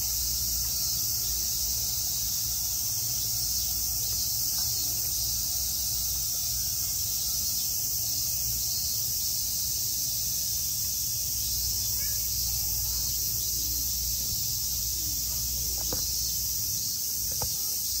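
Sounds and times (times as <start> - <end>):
cicadas buzzing: 0.0 - 18.0.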